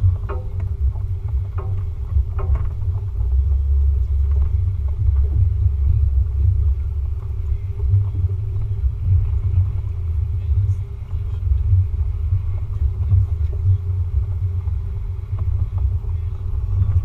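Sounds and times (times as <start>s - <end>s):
vehicle rumbling on muddy trail: 0.0s - 17.0s.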